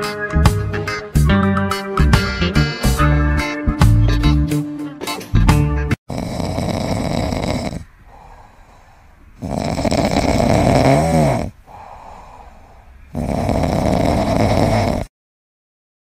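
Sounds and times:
kitten snoring: 0:06.1 - 0:15.1.

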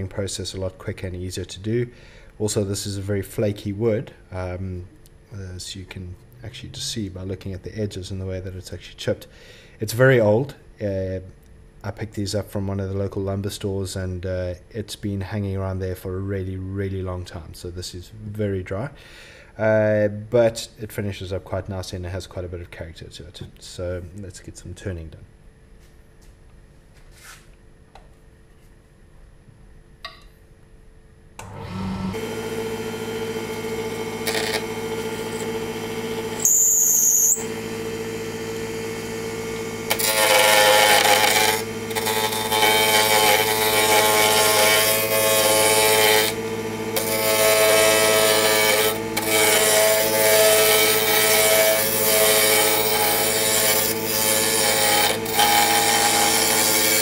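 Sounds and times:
wood lathe humming: 0:31.4 - 0:57.0
cutter scraping wood: 0:31.7 - 0:37.6, 0:39.3 - 0:57.0
high squeal: 0:36.4 - 0:37.5.

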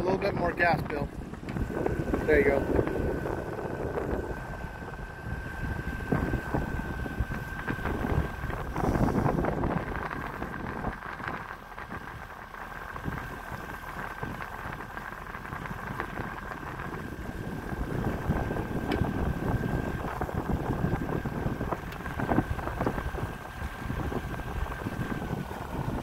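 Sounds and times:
boat motor whining: 0:00.0 - 0:26.0
wind buffeting microphone: 0:00.0 - 0:26.0.

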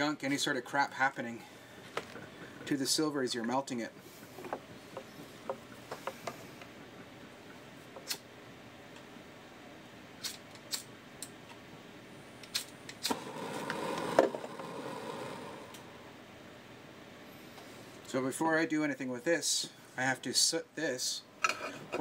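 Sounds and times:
gas torch hissing: 0:12.5 - 0:16.3.

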